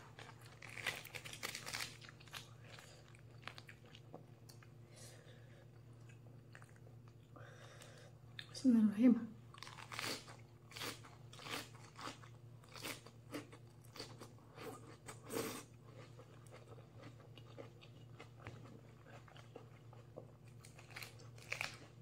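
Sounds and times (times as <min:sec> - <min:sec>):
person chewing crunchy lettuce: 0:00.0 - 0:04.8, 0:05.8 - 0:08.5, 0:09.5 - 0:22.0.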